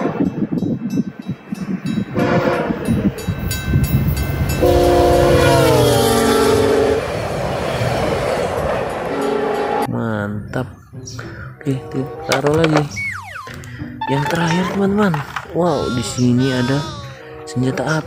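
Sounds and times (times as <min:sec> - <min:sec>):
train rumbling past: 0:00.0 - 0:10.0
locomotive horn blasts: 0:02.2 - 0:02.9, 0:04.6 - 0:07.1, 0:09.1 - 0:09.9.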